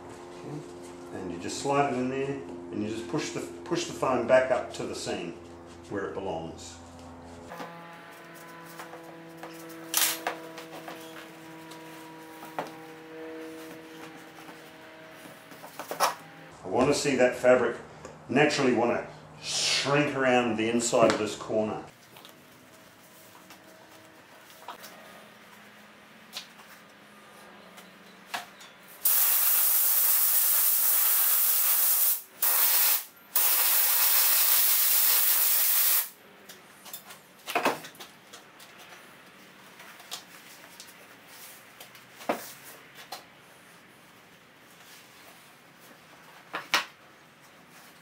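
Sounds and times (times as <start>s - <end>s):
spray adhesive hissing: 29.0s - 36.1s.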